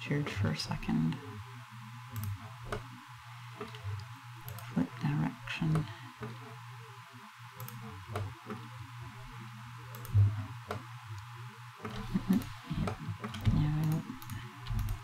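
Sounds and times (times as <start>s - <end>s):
steady low hum: 0.0s - 15.0s
computer mouse buttons clicking: 4.4s - 4.7s, 7.6s - 8.7s, 9.9s - 10.8s, 11.8s - 15.0s.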